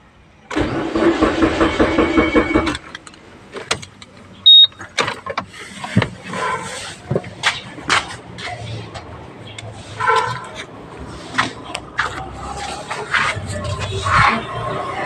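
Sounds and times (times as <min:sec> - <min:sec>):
car starter cranking: 0:00.5 - 0:03.2
short high-pitched beep: 0:04.5 - 0:04.8.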